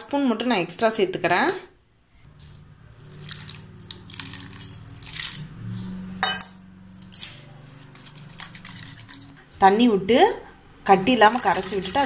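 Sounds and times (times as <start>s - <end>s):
water poured into bowl: 3.0s - 5.5s, 11.2s - 12.0s
spoon clinking and scraping bowl: 3.1s - 9.5s.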